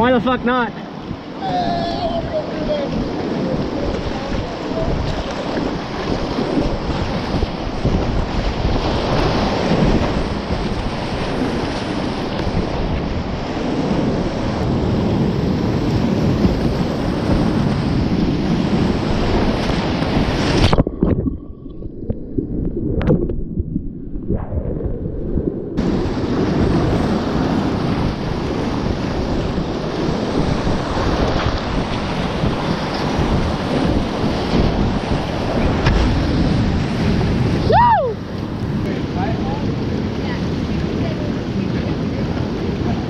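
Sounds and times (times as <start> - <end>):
rapids rushing and splashing: 0.0 - 21.2
wind buffeting microphone: 0.0 - 43.0
sharp knocks underwater: 19.4 - 25.2, 35.6 - 36.3.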